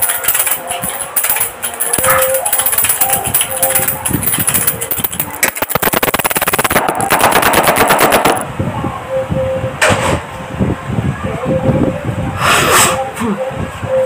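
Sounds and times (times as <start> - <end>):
rapid rattle of sharp clicks: 0.0 - 8.4.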